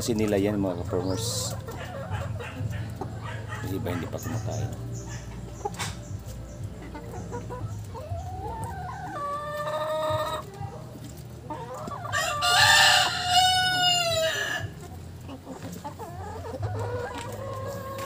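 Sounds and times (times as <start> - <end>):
hens clucking: 0.0 - 18.0
roosters crowing: 1.0 - 5.4, 11.5 - 14.9.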